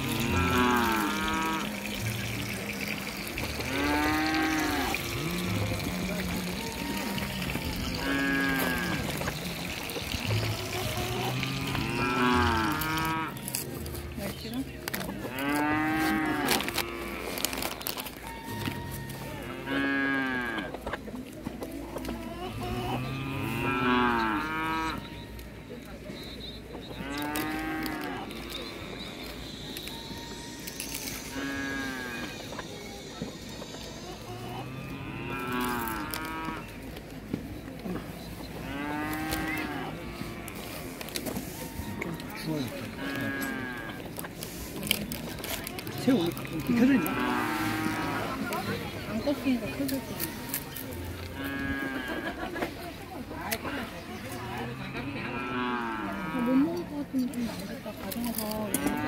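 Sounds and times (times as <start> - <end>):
cow mooing: 0.0 - 2.6, 3.4 - 9.3, 10.3 - 13.6, 15.3 - 17.6, 18.2 - 20.7, 22.6 - 25.1, 31.2 - 32.4, 34.4 - 36.7, 38.7 - 40.8, 41.5 - 44.0, 45.9 - 48.7, 51.3 - 52.3, 54.5 - 56.8.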